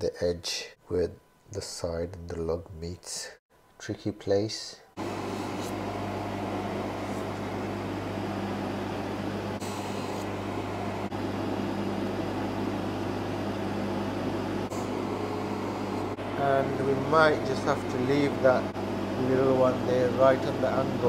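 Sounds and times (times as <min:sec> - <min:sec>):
polishing motor humming and whirring: 0:05.0 - 0:21.0.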